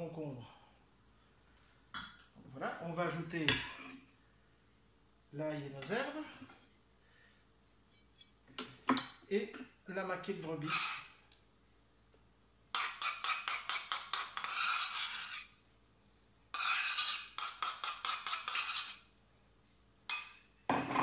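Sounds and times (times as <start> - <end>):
metal spoon scraping a bowl: 10.6 - 11.2, 12.7 - 15.6, 16.5 - 19.1.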